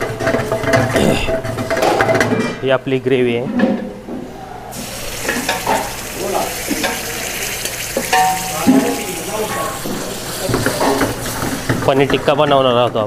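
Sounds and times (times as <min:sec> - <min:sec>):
gravy sizzling in hot oil: 0:04.7 - 0:12.3
utensil knocking against pan: 0:08.0 - 0:12.2.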